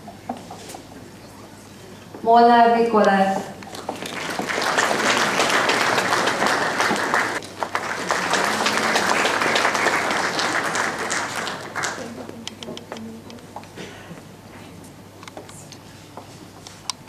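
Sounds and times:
audience applauding: 3.7s - 12.4s.

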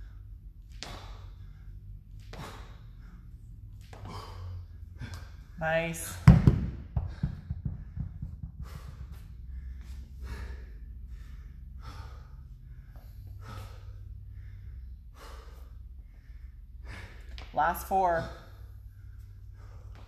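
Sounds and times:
person gasping breaths: 0.0s - 5.6s, 7.0s - 17.5s, 18.4s - 20.0s
dumbbells hitting rubber floor: 6.0s - 9.0s.

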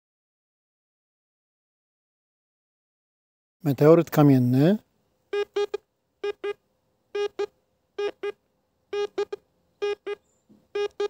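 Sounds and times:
metal detector double beeps: 5.4s - 6.6s, 7.2s - 8.4s, 9.0s - 10.2s, 10.8s - 11.0s.

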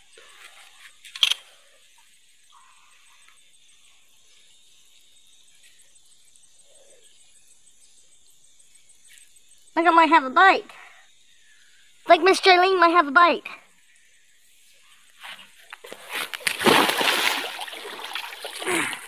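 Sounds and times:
insects chirping: 0.0s - 19.0s
quiet outdoor hiss: 0.0s - 19.0s
sharp click: 1.1s - 1.4s.

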